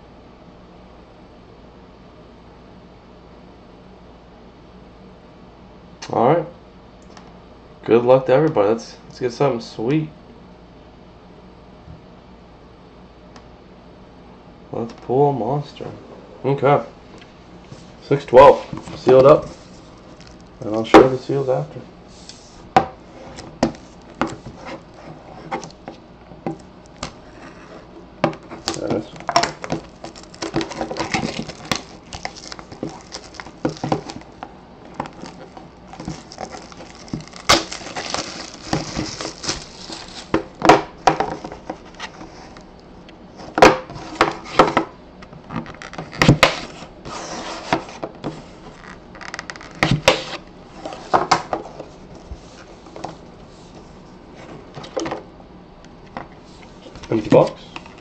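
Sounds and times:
knife scratching through plastic: 0:28.5 - 0:34.2
plastic wrap crinkling: 0:28.6 - 0:40.6.

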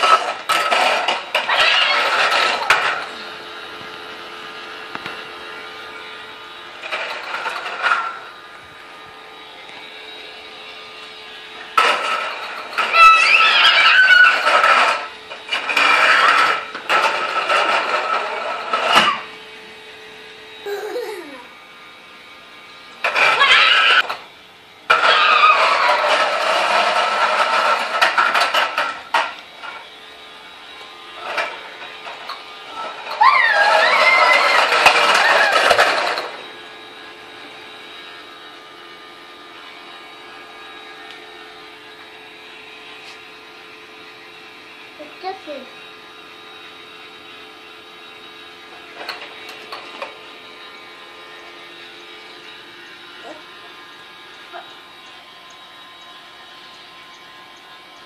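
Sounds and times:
toy lawn mower rattling: 0:00.0 - 0:03.2, 0:06.8 - 0:08.2, 0:11.8 - 0:19.2, 0:20.6 - 0:21.5, 0:23.0 - 0:24.2, 0:24.9 - 0:29.8, 0:31.2 - 0:36.4, 0:48.9 - 0:50.2
small fan motor humming: 0:00.0 - 0:58.0.

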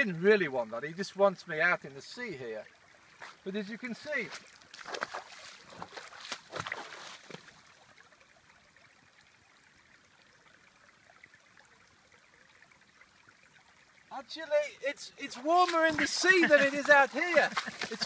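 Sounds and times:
water trickling: 0:00.0 - 0:18.0
feet splashing in water: 0:03.1 - 0:03.5, 0:04.1 - 0:07.7, 0:15.2 - 0:18.0.

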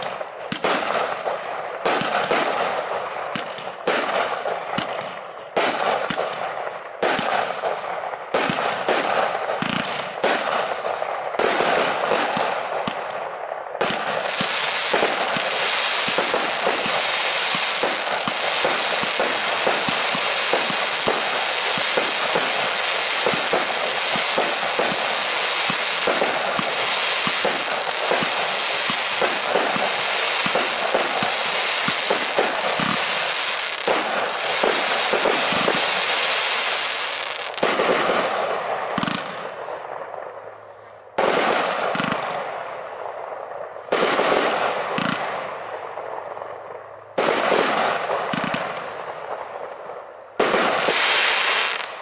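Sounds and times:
firework battery launches and bursts: 0:14.2 - 0:38.0.

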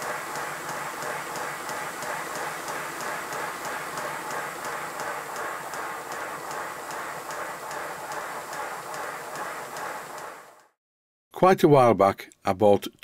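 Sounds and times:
sharp ticking of turning motion: 0:00.0 - 0:10.7.

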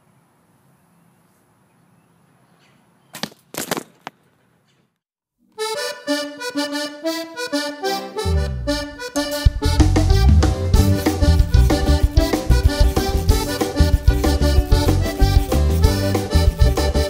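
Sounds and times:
accordion melody: 0:05.5 - 0:17.0.

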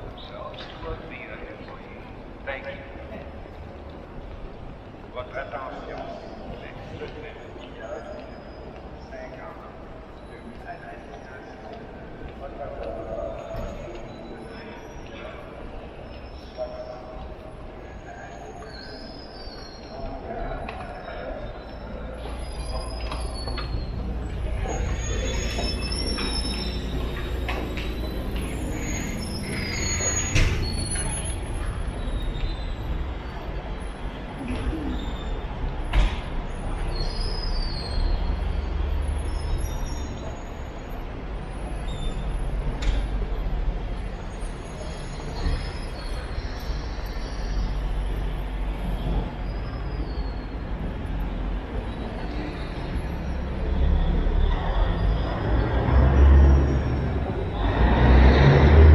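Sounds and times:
city and station noise: 0:00.0 - 0:58.9
crowd walking: 0:00.0 - 0:58.9
street traffic noise: 0:00.0 - 0:58.9
small clicks and squeaks: 0:20.6 - 0:32.9.

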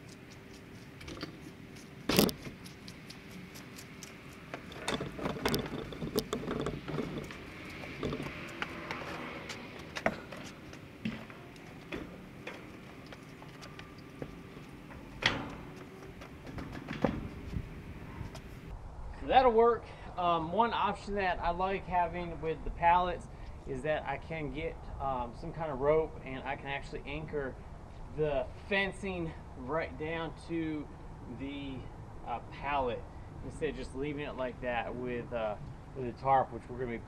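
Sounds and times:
metal fence panel rattling: 0:04.1 - 0:18.7.

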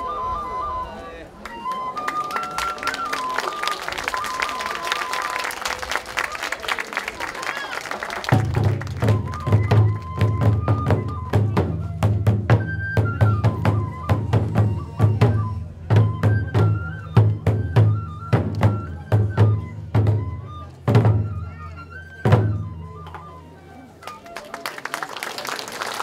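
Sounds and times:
bamboo flute melody: 0:00.0 - 0:06.6, 0:08.3 - 0:25.1
taiko drums thumping: 0:08.3 - 0:21.4, 0:22.2 - 0:22.7.

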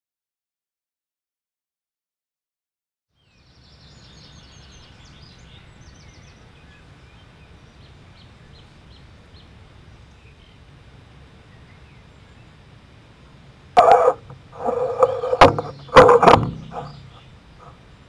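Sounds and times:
bird song and calls: 0:03.2 - 0:10.7, 0:11.4 - 0:13.2, 0:13.8 - 0:18.0
steady low rumble: 0:04.8 - 0:18.0.

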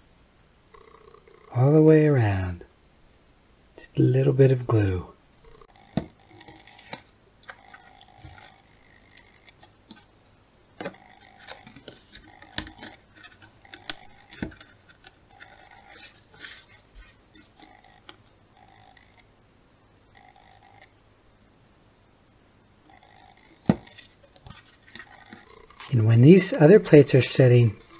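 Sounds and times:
paper plates tapping and rustling: 0:05.9 - 0:18.3, 0:23.6 - 0:25.5.

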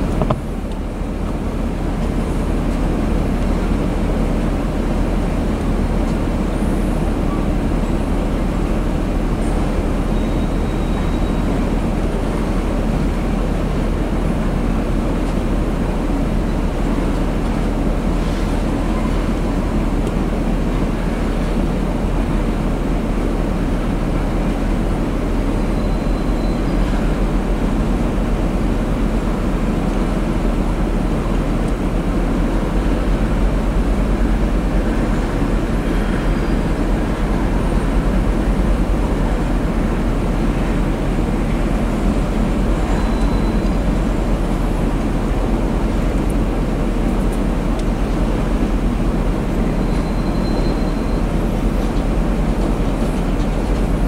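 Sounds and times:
steel wheels rumbling on rail: 0:00.0 - 0:54.0
faint high-pitched wheel squeals: 0:09.4 - 0:11.8, 0:25.4 - 0:27.2, 0:42.8 - 0:44.2, 0:49.6 - 0:51.9.

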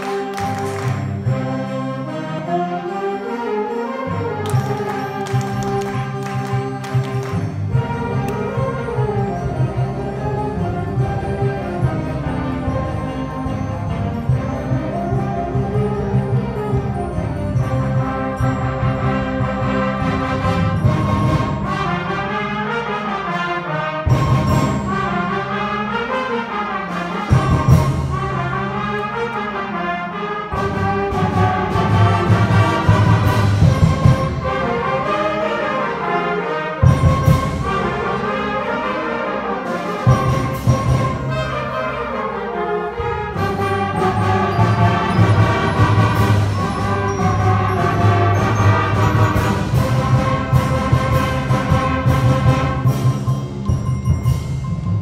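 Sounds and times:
concert band playing: 0:00.0 - 0:55.0
trumpets: 0:17.5 - 0:53.3.

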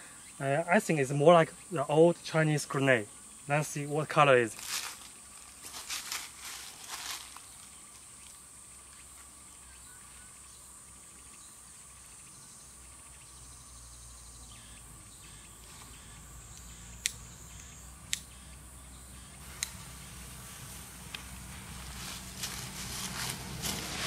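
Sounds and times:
insect chirring: 0:00.0 - 0:24.0
sharp clicks: 0:16.5 - 0:18.3.

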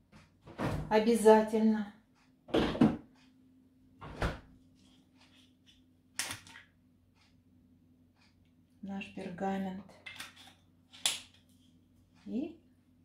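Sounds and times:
kitchen handling bumps and rustles: 0:02.5 - 0:03.1.

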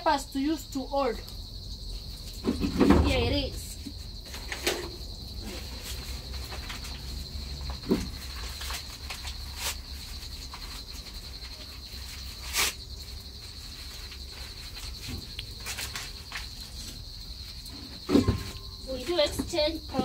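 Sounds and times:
crickets chirring: 0:00.0 - 0:20.0.

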